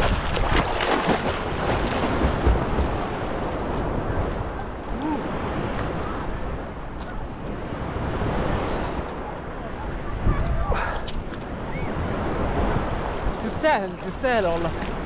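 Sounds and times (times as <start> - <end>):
swimming stroke splashes: 0.0 - 3.5
seawater sloshing and lapping: 0.0 - 5.0.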